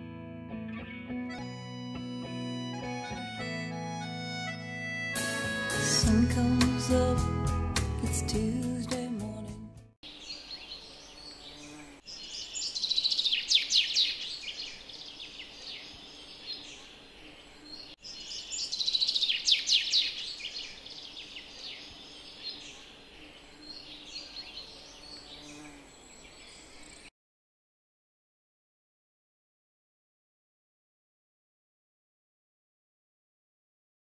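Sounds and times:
songbirds chirping: 8.1 - 27.1.

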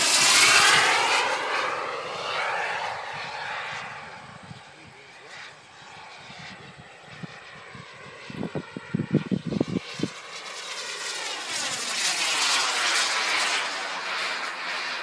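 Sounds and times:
model jet turbine whine: 0.0 - 15.0.

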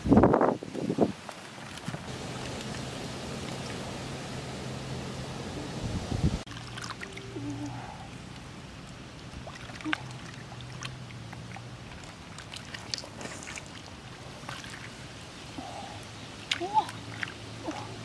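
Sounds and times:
hands splashing in puddle: 6.5 - 7.2, 9.3 - 15.1.

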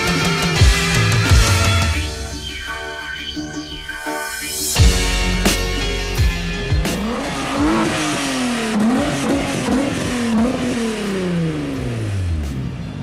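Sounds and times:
car engine revving: 4.9 - 13.0.

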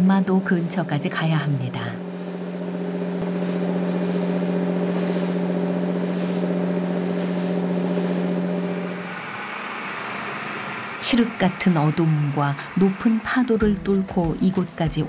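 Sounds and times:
boat engine droning: 0.0 - 15.0
spray and wind hissing: 3.2 - 9.1.

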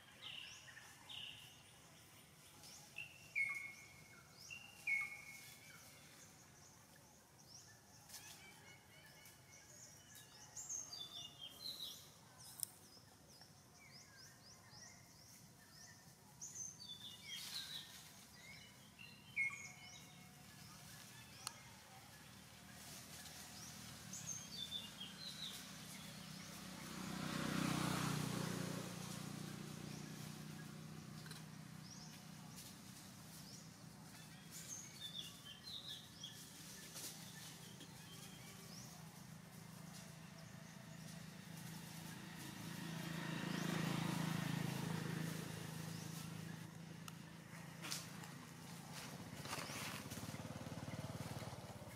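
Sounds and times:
bird chirps: 0.0 - 21.9
vehicle engine hum passing: 9.5 - 51.9
dry leaves rustling and crunching: 19.9 - 30.6, 35.8 - 46.7, 47.6 - 51.8.

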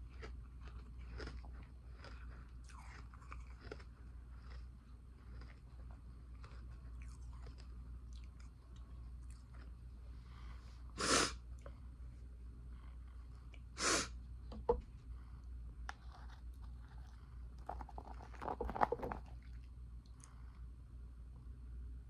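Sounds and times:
crackling chews: 0.0 - 10.5, 15.4 - 20.6.

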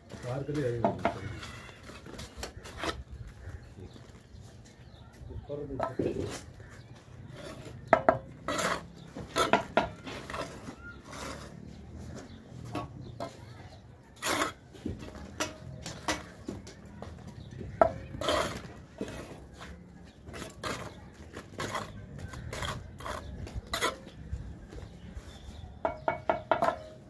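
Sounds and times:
trowel scraping mortar: 1.0 - 3.1, 7.2 - 13.4, 14.1 - 16.4, 17.7 - 24.4
trowel tapping on bricks: 7.7 - 10.6, 14.3 - 19.5, 25.8 - 27.0.

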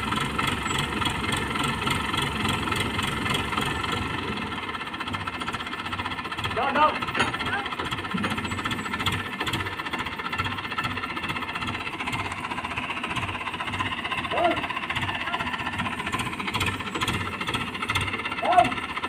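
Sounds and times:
crane engine knocking: 0.0 - 19.0
man calling: 14.2 - 15.7, 18.2 - 19.0.

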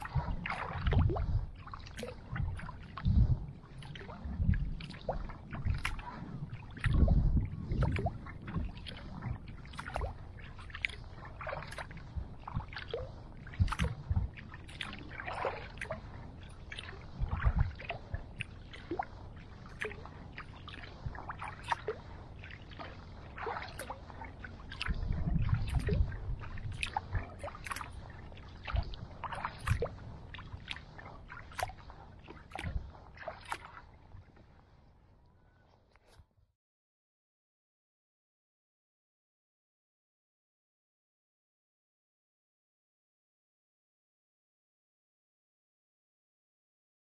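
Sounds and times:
paddle dripping and splashing: 0.0 - 34.9.

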